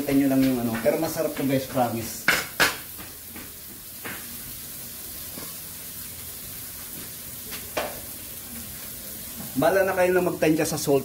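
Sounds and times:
food sizzling in a wok: 0.0s - 11.0s
sharp knocks: 2.2s - 3.5s.

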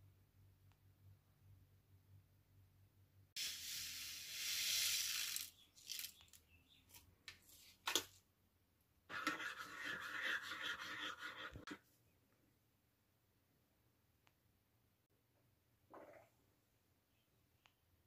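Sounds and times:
powder pouring into mug: 3.4s - 6.1s.

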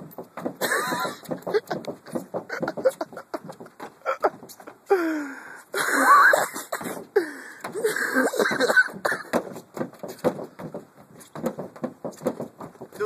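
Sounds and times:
thumps of stomping on car roof: 0.0s - 4.9s, 6.7s - 13.0s
people laughing and wheezing: 0.6s - 9.0s.

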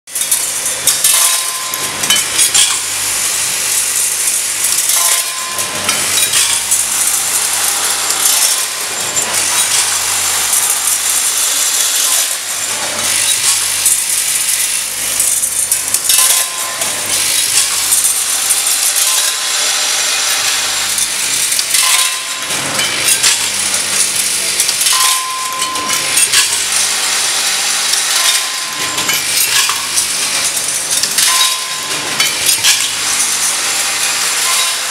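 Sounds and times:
bolts rattling in feeder bowls: 3.6s - 34.9s.

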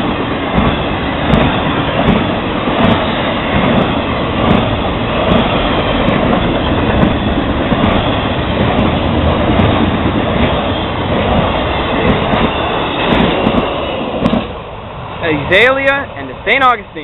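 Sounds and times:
wheels clickety-clack: 0.0s - 14.6s
freight train wheels rumbling: 0.0s - 17.0s.

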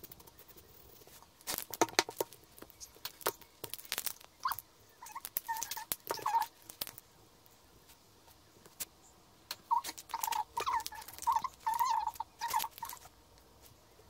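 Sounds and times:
paint pen squeaking on rock: 0.0s - 7.0s, 9.5s - 13.1s.

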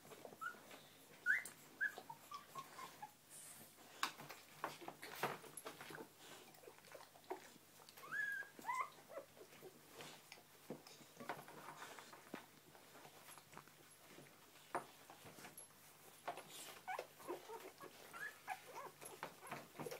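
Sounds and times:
scratching and rustling: 0.0s - 19.9s
puppies squeaking: 0.4s - 0.6s, 1.2s - 3.2s, 7.3s - 9.6s, 16.6s - 19.9s.

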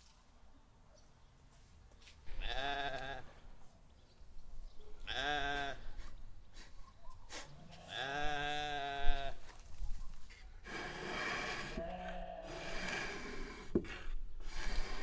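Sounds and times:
farm animal bleating: 2.3s - 3.4s, 5.0s - 6.0s, 7.6s - 9.5s, 11.7s - 12.9s.

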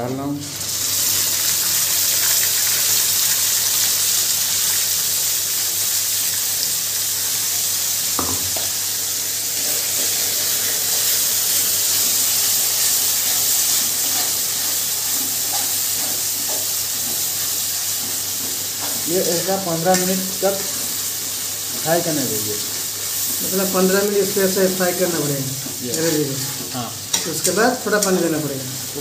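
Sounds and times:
paste sizzling in hot oil: 0.3s - 29.0s
spatula stirring: 13.0s - 28.9s.

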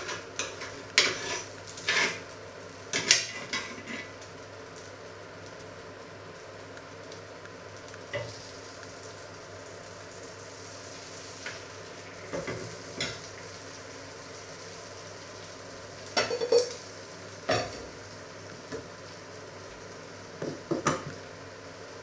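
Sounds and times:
glass lid clinking on steel pot: 16.2s - 16.8s
metal kitchenware clattering: 16.2s - 16.8s.

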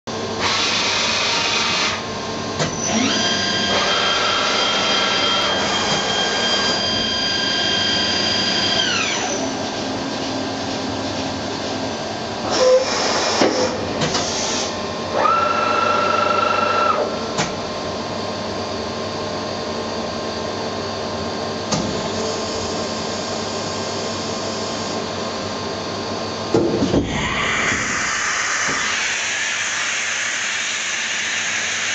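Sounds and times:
steady machine hum: 16.0s - 31.9s.

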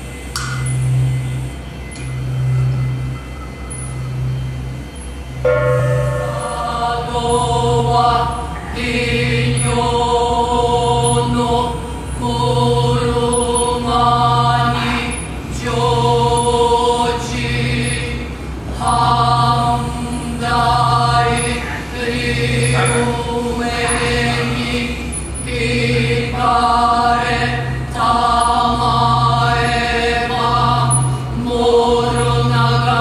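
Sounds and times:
low throbbing drone: 0.0s - 33.0s
chanted singing: 5.4s - 33.0s.

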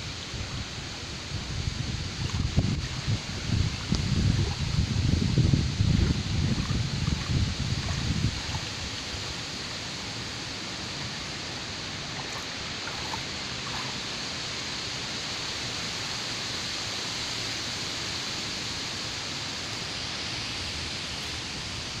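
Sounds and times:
wind buffeting microphone: 0.0s - 9.5s
choppy water: 0.0s - 19.9s
wind rushing: 1.3s - 9.0s.

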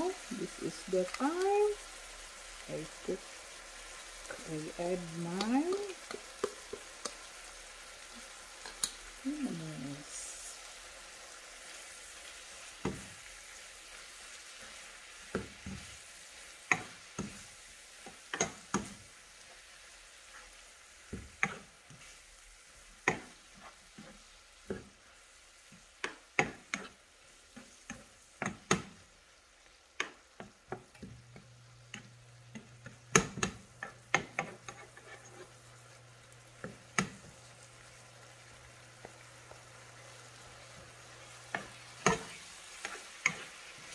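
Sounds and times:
fish and vegetables sizzling in pan: 0.0s - 43.9s
spoon scraping a pan: 16.6s - 22.2s, 23.0s - 25.0s, 26.0s - 28.9s, 30.0s - 35.8s, 40.7s - 43.9s.

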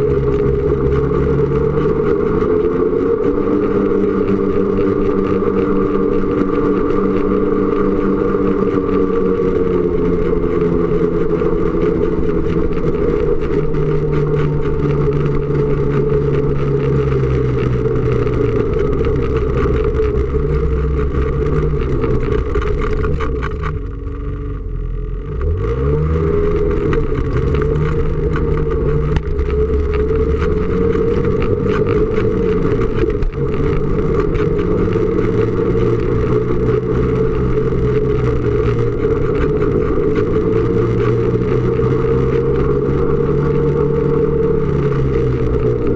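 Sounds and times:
snowmobile engine revving: 0.0s - 45.9s.

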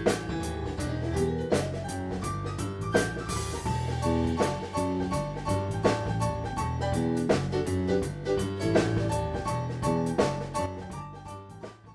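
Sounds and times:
steady drum beat: 0.0s - 11.9s.

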